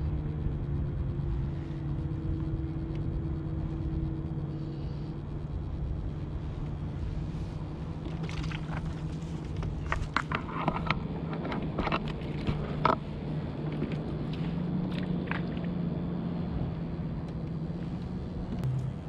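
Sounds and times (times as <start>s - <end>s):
low motor hum: 0.0s - 19.0s
fishing gear clicks and knocks: 8.0s - 13.0s.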